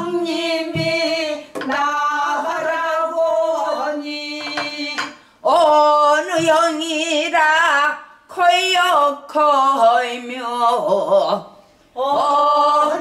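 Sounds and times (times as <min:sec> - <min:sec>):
woman singing with vibrato: 0:00.0 - 0:13.0.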